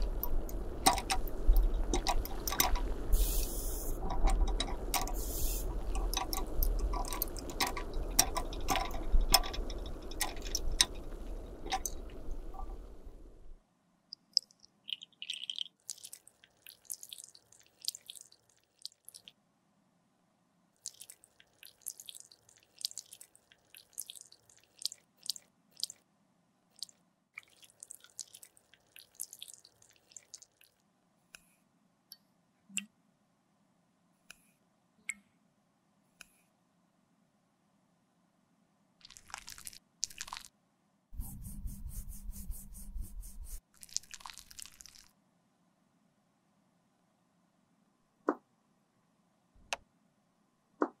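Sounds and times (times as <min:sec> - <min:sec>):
wet sticky crackling clicks: 0:04.1 - 0:12.7, 0:39.0 - 0:40.5
melted lipstick pouring: 0:39.0 - 0:40.5, 0:43.7 - 0:45.1.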